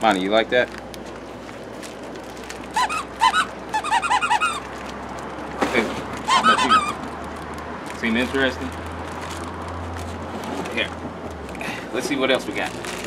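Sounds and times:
squeaky dog toy squeaking: 2.7 - 4.8, 6.2 - 7.0.

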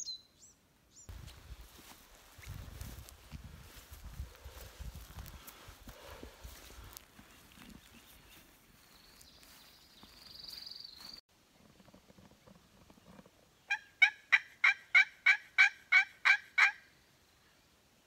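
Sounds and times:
turkey call yelps: 13.7 - 16.9.

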